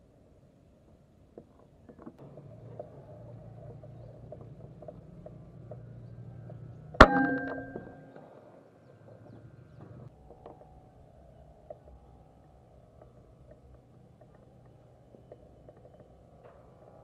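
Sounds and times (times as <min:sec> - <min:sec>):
air rifle shot with metallic ring: 0:07.0 - 0:08.2.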